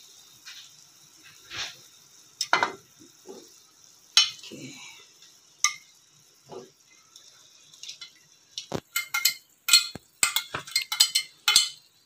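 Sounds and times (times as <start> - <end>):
sauce sizzling: 0.0 - 12.0
utensil knocking on frying pan: 2.5 - 2.8, 8.9 - 11.9.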